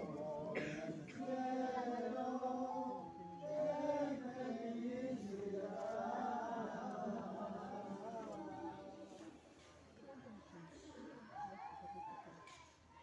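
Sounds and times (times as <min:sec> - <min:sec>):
group singing a religious song: 0:00.0 - 0:09.4.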